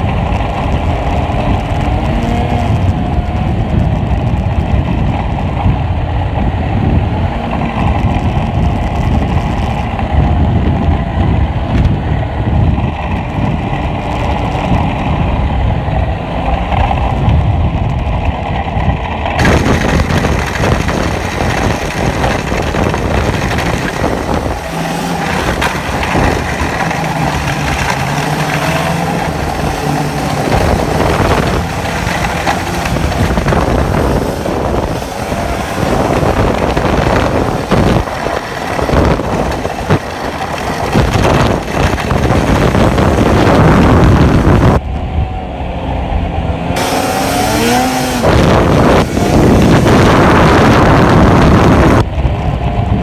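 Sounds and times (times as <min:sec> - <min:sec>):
snowmobile engine running hard: 0:00.0 - 0:53.0
loud rushing hiss: 0:46.8 - 0:49.8.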